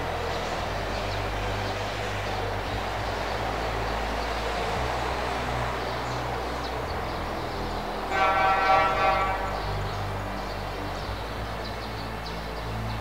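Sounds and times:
distant traffic rumble: 0.0 - 13.0
car horn: 8.1 - 9.9.

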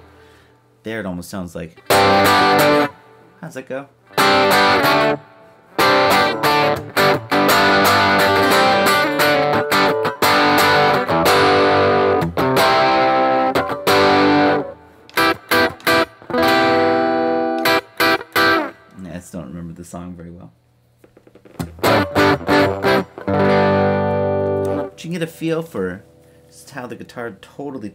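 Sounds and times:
distorted electric guitar chords: 1.8 - 3.1, 4.1 - 18.8, 21.0 - 25.0.

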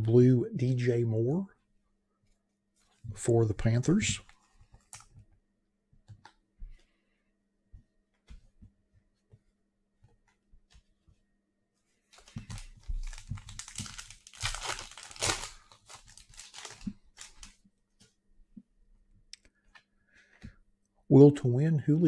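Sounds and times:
plastic crinkling and rustling: 12.0 - 17.6.

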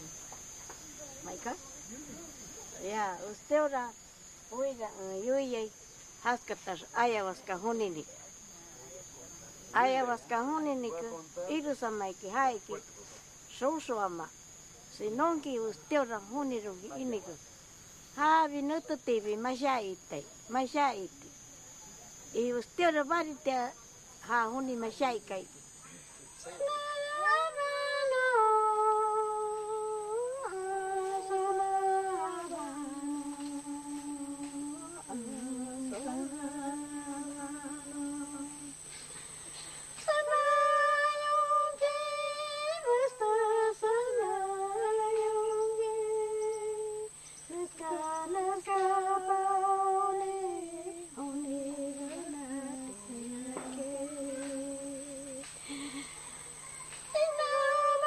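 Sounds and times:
person singing a chant: 26.6 - 38.7, 40.1 - 56.0, 57.1 - 58.0.

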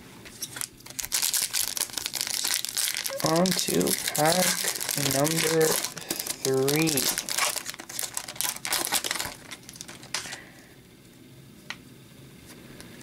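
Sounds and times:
wrapper being torn and crinkled: 0.4 - 10.4.

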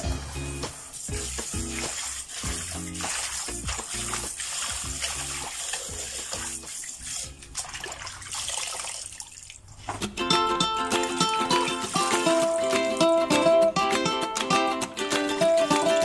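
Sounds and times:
background music: 0.0 - 7.8, 10.0 - 16.0
leaves swished in water: 1.0 - 9.9
water dripping: 1.0 - 10.0, 10.8 - 13.2.

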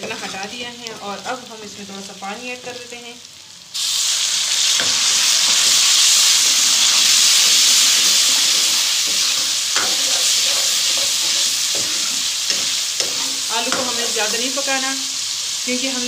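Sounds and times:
water sizzling in hot oil: 0.0 - 16.0.

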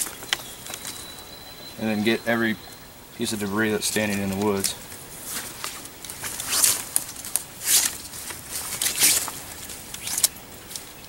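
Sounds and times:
rope sliding and rubbing: 4.1 - 10.8.

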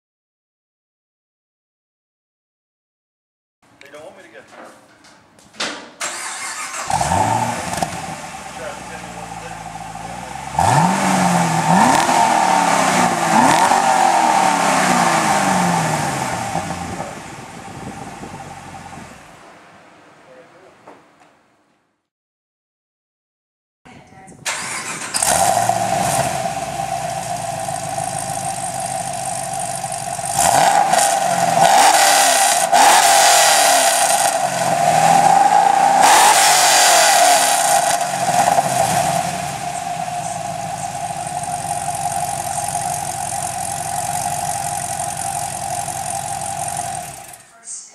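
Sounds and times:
car engine idling and revving: 6.1 - 19.4, 24.5 - 47.5
steady whine: 25.0 - 47.6.

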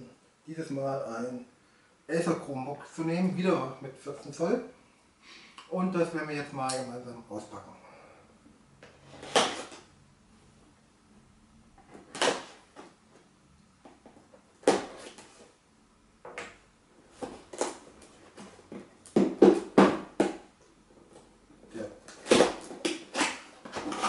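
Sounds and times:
cardboard scraping and rustling: 22.2 - 24.0.

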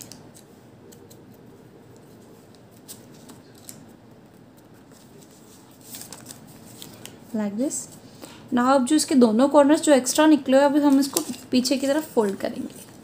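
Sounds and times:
paper being folded: 0.0 - 7.4.

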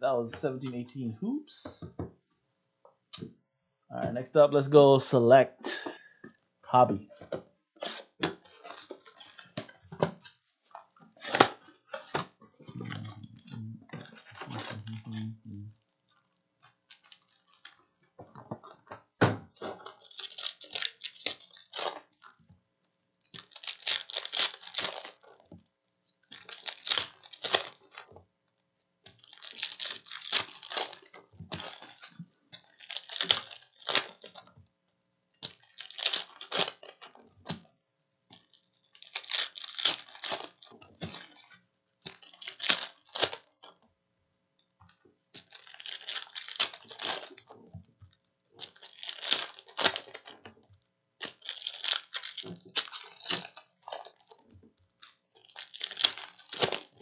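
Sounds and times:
plastic wrap crinkling: 7.8 - 9.9, 16.0 - 17.8, 19.5 - 22.4, 23.2 - 25.5, 26.2 - 28.1, 29.1 - 34.6, 35.4 - 37.7, 38.3 - 43.8, 45.4 - 57.0
foil packs tearing: 19.6 - 22.1, 23.3 - 25.4, 26.3 - 28.1, 29.1 - 34.5, 35.4 - 37.2, 38.4 - 41.5, 42.1 - 43.6, 45.4 - 47.6, 48.6 - 50.4, 51.2 - 54.4, 55.0 - 57.0.

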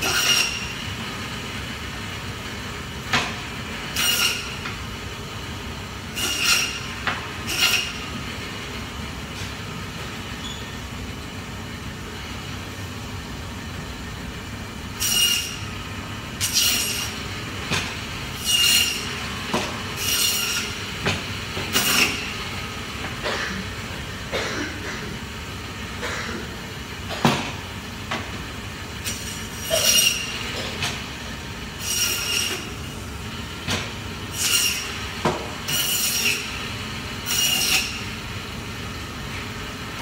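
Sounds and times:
saw blade screeching through bone: 0.0 - 0.6, 4.0 - 4.6, 15.0 - 15.6, 16.4 - 17.2, 20.0 - 20.8, 29.1 - 30.3, 31.8 - 32.7, 37.3 - 38.0
meat bandsaw running: 0.0 - 8.7, 14.9 - 40.0.

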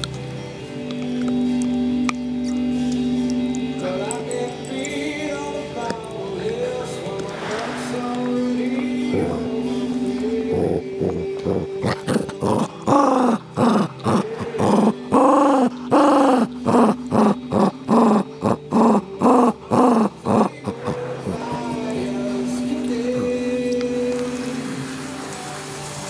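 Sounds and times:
dog growling: 7.2 - 23.5.

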